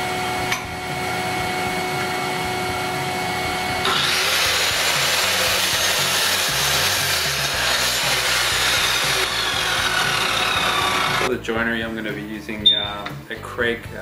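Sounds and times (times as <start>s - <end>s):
mitre saw motor whining: 3.8s - 11.3s
saw blade cutting wood: 3.8s - 11.3s.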